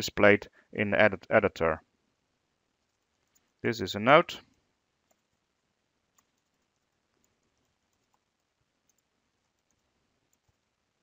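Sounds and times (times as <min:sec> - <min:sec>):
faint keyboard typing: 0:02.7 - 0:03.6, 0:04.4 - 0:11.0.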